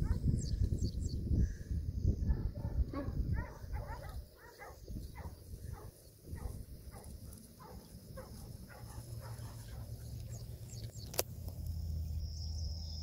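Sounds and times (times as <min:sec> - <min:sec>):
wind rumble on microphone: 0:00.0 - 0:11.2.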